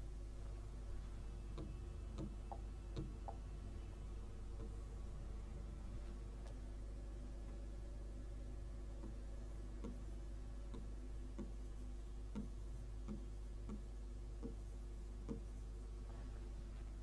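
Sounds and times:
low electrical hum: 0:00.0 - 0:17.0
stylus tapping on touchscreen: 0:01.5 - 0:03.5, 0:09.8 - 0:10.1, 0:10.7 - 0:15.8.

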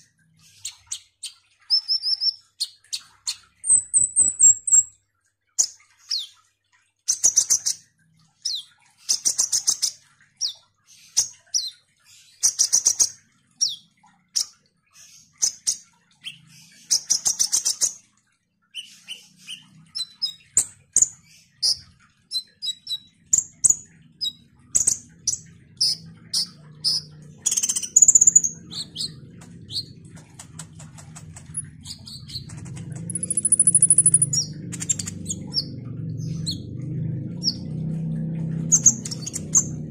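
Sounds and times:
bird chattering trills: 0:25.8 - 0:35.7
low rumbling noise: 0:28.4 - 0:39.9.

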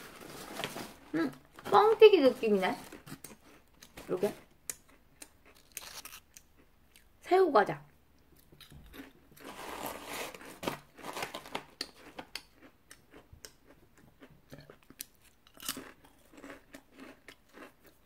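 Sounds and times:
chip crunching being chewed: 0:02.8 - 0:07.1, 0:08.3 - 0:18.0.

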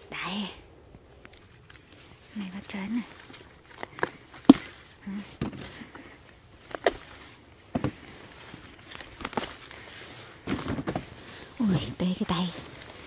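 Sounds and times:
leaves rustling: 0:00.0 - 0:13.0
pepper stems snapping: 0:01.2 - 0:05.8, 0:06.6 - 0:07.2, 0:08.8 - 0:09.8.

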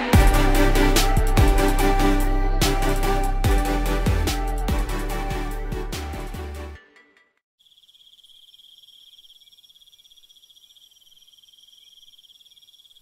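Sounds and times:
music: 0:00.0 - 0:07.4
high pulsing insect trill: 0:07.6 - 0:13.0.

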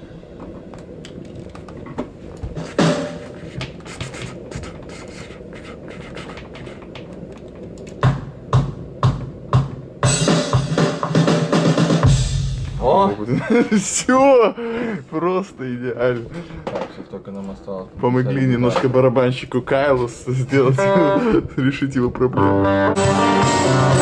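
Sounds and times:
programmed metal drum track: 0:02.6 - 0:03.4, 0:07.9 - 0:13.1, 0:23.0 - 0:24.0.

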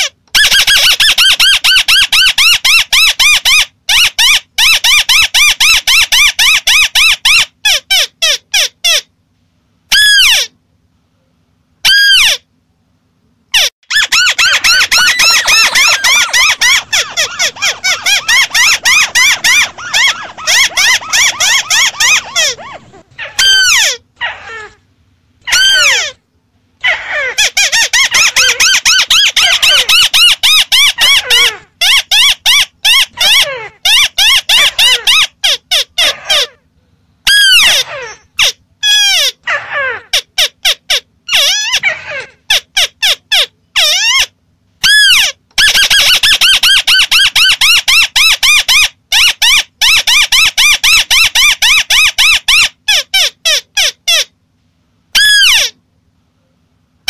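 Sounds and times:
bird harsh chattering calls: 0:13.6 - 0:24.7, 0:26.8 - 0:36.6.

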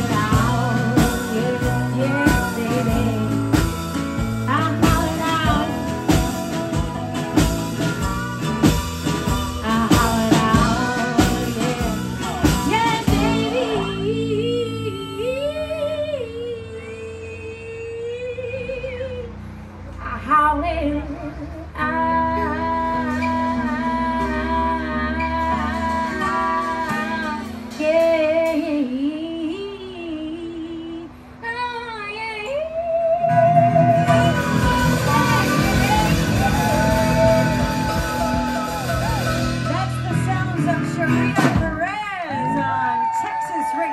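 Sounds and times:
woman singing wordless notes: 0:00.0 - 0:08.0, 0:09.6 - 0:19.4, 0:20.0 - 0:43.9
drums steady beat: 0:00.0 - 0:14.8, 0:34.0 - 0:43.9
country-rock band playing: 0:00.0 - 0:16.1, 0:21.9 - 0:29.0, 0:33.2 - 0:43.9
held guitar notes: 0:00.0 - 0:17.0, 0:21.8 - 0:30.5, 0:32.9 - 0:42.8
steel guitar sliding tone: 0:21.8 - 0:29.4, 0:32.9 - 0:41.4.

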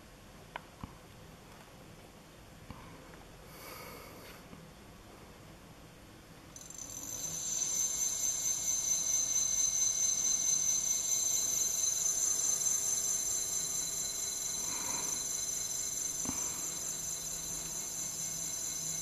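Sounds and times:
faint hum: 0:00.0 - 0:19.0.

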